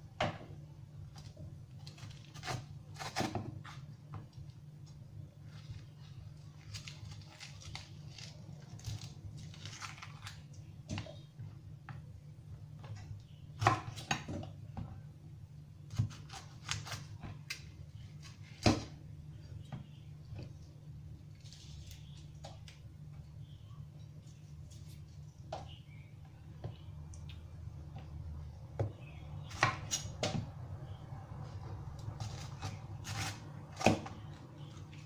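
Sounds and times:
steady low hum: 0.0 - 35.0
knife slicing peppers: 32.0 - 35.0.

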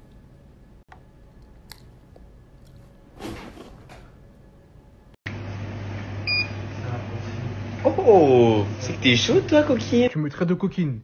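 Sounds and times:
low steady hum: 0.0 - 11.0
short high thermometer beep: 6.3 - 6.6.

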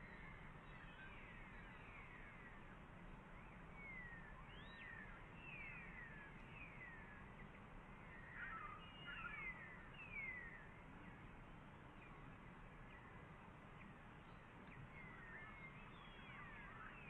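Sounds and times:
bird twitter: 0.0 - 2.7, 3.4 - 10.8, 13.8 - 17.0
thin descending bird whistles: 3.8 - 6.2.

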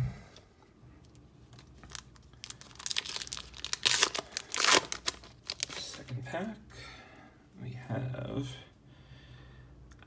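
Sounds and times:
foil wrapper crinkling and tearing: 1.4 - 6.2.

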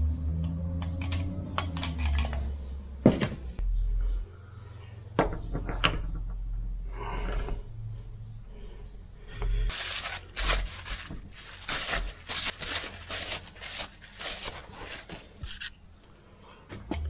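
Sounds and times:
paper towel rubbing metal: 9.7 - 15.8.

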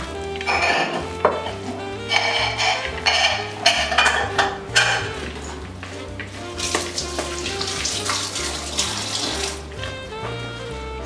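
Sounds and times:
wooden spoon stirring in a bowl: 0.0 - 7.8.

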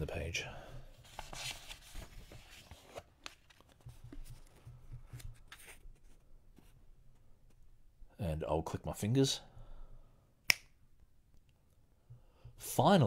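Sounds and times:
book page turning: 1.0 - 6.8.

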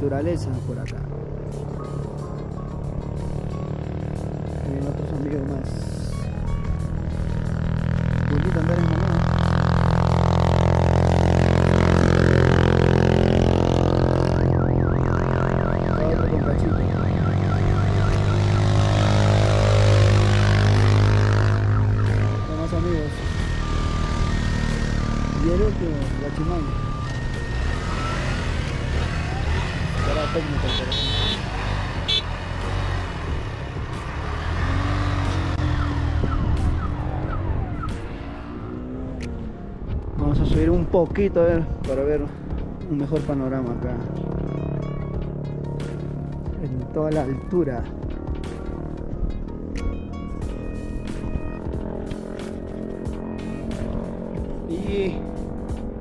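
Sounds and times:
low droning music: 0.0 - 56.0
vehicle engine rumbling: 0.0 - 56.0
warbling high tone: 6.0 - 32.3, 35.2 - 39.2.

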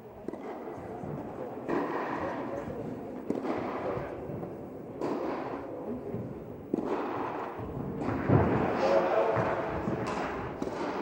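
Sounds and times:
tennis ball strikes echoing: 0.2 - 0.8, 3.2 - 4.1, 5.0 - 5.5, 6.7 - 11.0.

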